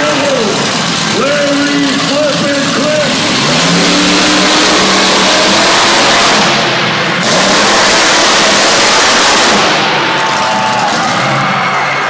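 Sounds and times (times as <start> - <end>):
truck engine revving hard: 0.0 - 12.0.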